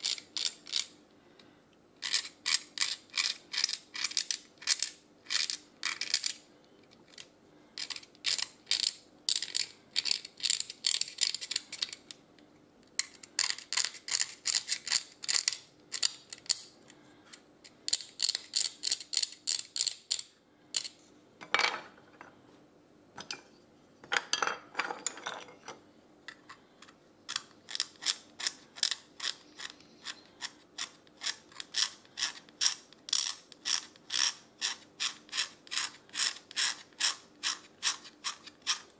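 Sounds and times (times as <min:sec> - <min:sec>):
blade scraping a nut: 0:02.0 - 0:06.4, 0:13.3 - 0:16.6, 0:27.3 - 0:38.9.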